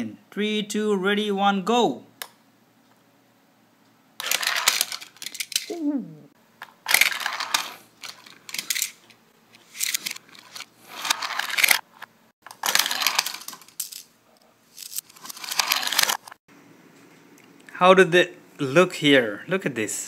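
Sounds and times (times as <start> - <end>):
toy trains scraping and clattering: 4.2 - 5.6, 6.9 - 11.8, 12.5 - 14.0.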